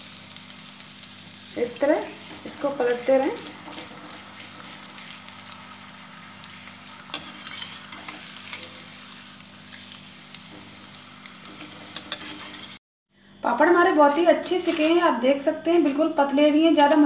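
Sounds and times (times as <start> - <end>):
food sizzling in hot oil: 0.0 - 12.8
slotted spoon clicking and scraping: 11.6 - 12.6.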